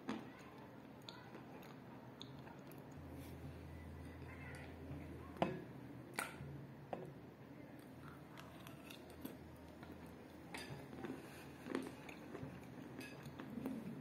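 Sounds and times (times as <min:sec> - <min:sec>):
chewing clay crunches: 0:07.8 - 0:14.0.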